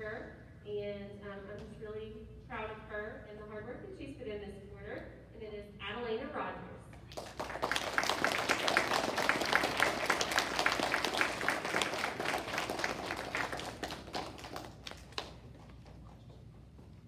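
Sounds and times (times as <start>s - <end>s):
children clapping: 7.1s - 16.0s.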